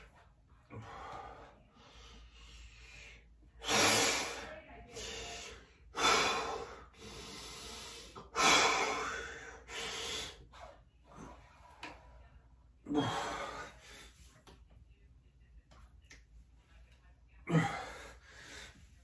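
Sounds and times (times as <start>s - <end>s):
man breathing hard: 5.2s - 10.5s.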